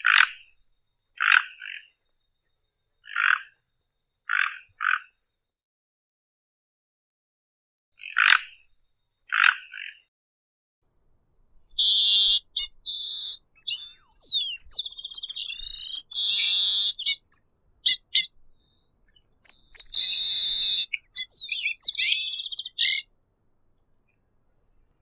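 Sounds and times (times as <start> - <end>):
bird singing chirps and whistles: 11.8 - 23.0.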